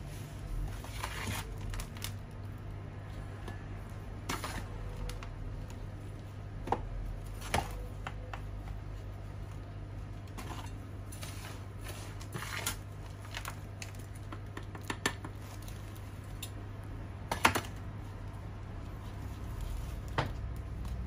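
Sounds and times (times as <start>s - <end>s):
potting soil crunching and rustling: 0.0s - 6.2s, 9.0s - 14.2s, 17.9s - 21.0s.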